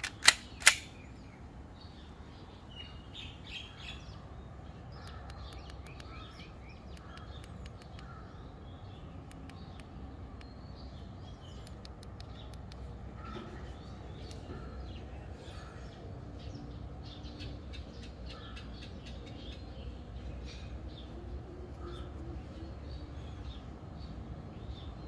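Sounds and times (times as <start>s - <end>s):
pistol slide clacks: 0.0s - 1.0s
small birds chirping: 0.0s - 25.0s.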